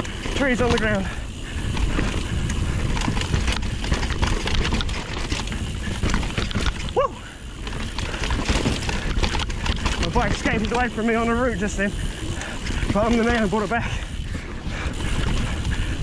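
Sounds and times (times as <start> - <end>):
wind on microphone: 0.0 - 11.0, 11.6 - 16.0
bike rattling and knocking: 0.0 - 16.0
bike tyres rumbling on dirt: 0.0 - 16.0.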